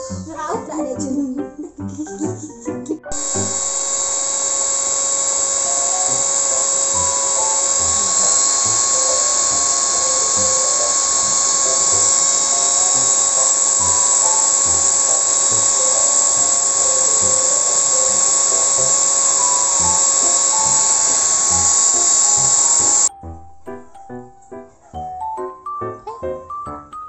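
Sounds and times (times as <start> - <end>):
faint background music: 0.0 - 3.1
hair dryer blowing: 3.1 - 23.1.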